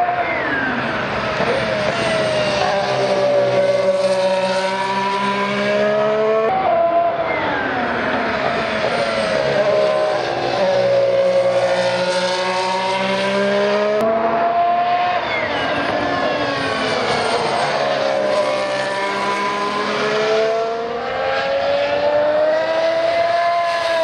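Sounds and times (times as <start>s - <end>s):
racing car engine at high revs: 0.0s - 24.0s.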